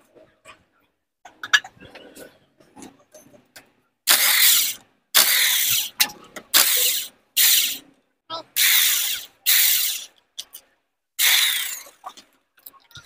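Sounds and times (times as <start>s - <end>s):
power ratchet wrench spinning: 4.1s - 6.0s, 6.6s - 7.8s, 8.6s - 10.1s, 11.2s - 11.9s.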